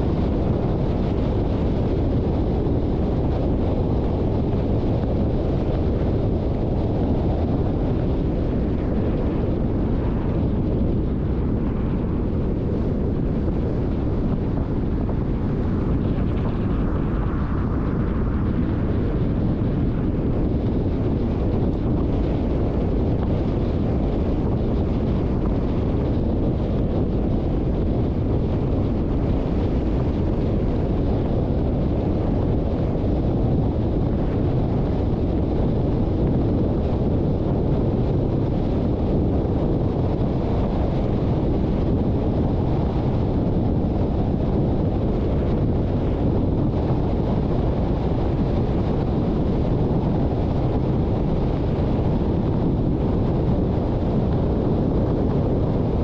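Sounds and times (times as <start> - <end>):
car driving road and wind noise: 0.0 - 56.0.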